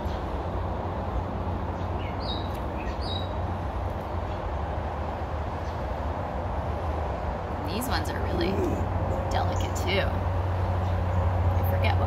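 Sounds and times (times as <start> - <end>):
low outdoor rumble: 2.7 - 12.0.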